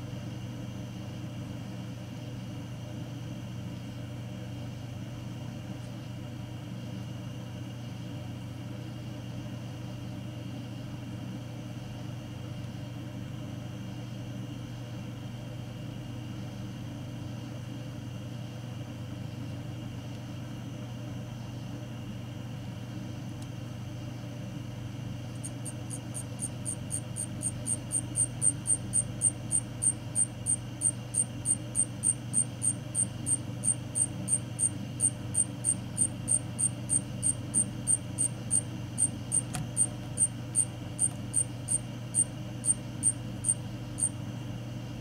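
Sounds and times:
steady low hum: 0.0 - 45.0
cricket chirping: 25.3 - 44.2.

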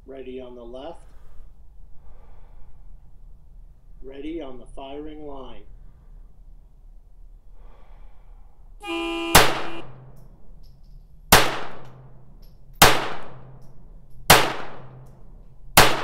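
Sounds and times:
buzzing start tone: 8.8 - 9.9
pistol shots: 9.3 - 10.3, 11.3 - 16.0.

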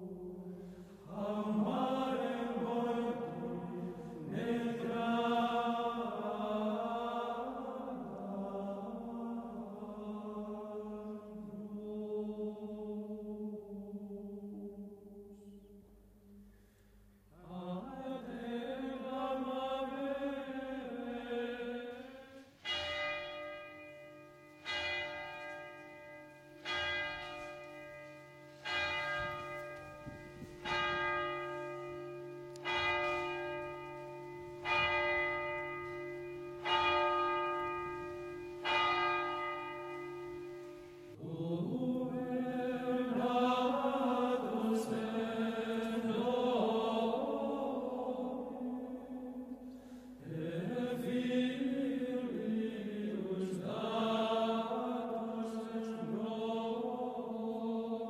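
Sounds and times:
chanted singing: 0.0 - 15.8, 17.4 - 23.9, 24.5 - 58.0
church bell tolling: 22.6 - 41.2.

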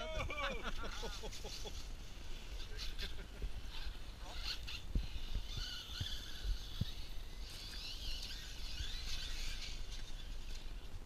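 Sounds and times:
toy car motor whining: 2.6 - 10.9.

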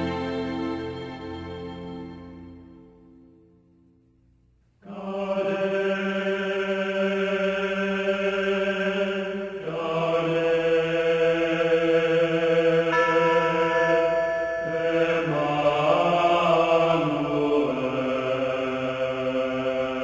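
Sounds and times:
background music: 0.0 - 3.9, 7.5 - 20.0
choir chanting held notes: 4.8 - 20.0.

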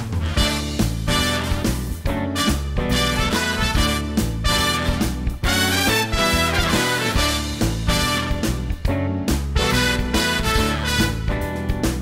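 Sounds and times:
instrumental music with steady beat: 0.0 - 12.0.

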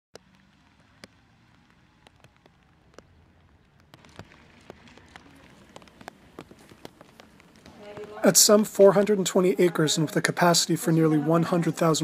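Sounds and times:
faint low rumble: 0.2 - 8.6
raindrops ticking: 0.2 - 12.0.

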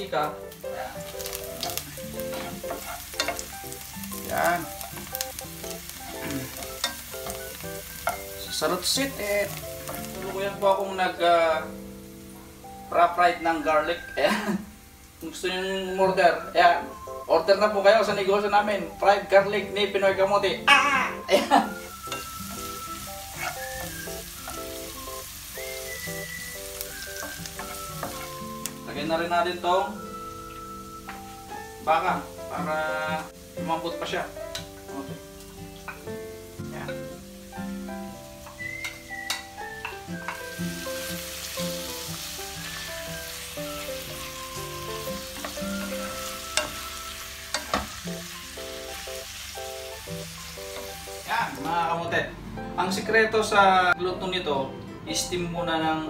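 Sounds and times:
garlic and onion sizzling in oil: 0.0 - 52.0
light background music: 0.0 - 56.0
wooden spatula stirring: 1.2 - 3.6, 22.1 - 25.0, 25.8 - 28.6.

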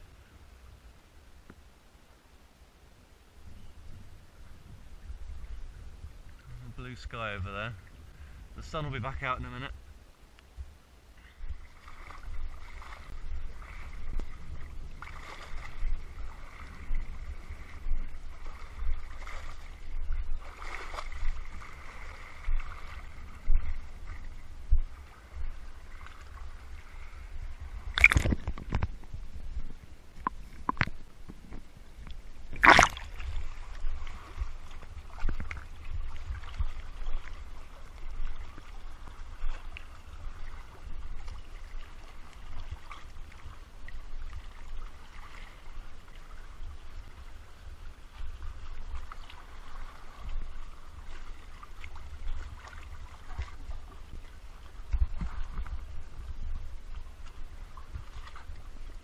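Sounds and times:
sea water sloshing and gurgling: 3.4 - 10.0, 10.6 - 59.0
sharp water splashes: 27.8 - 28.8, 32.5 - 34.4.

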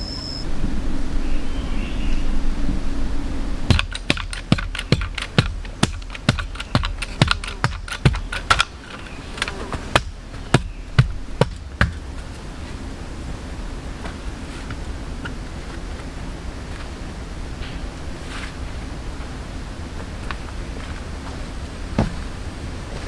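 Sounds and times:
hand shovel chopping earth: 3.7 - 12.3.

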